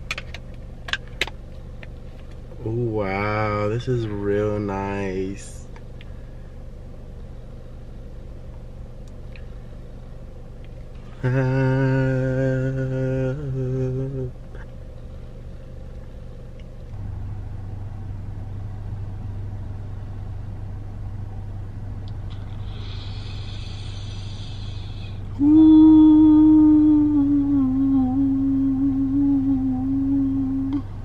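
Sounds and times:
low hum inside car: 0.0s - 31.0s
man humming: 11.1s - 14.7s, 22.6s - 31.0s.

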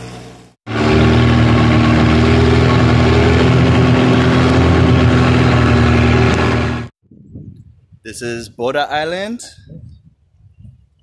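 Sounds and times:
boat engine running: 0.7s - 6.9s.

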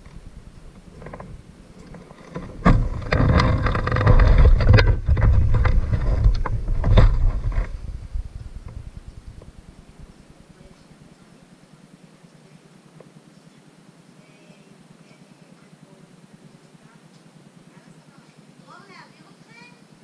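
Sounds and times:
rumbling vehicle noise: 0.0s - 10.8s.

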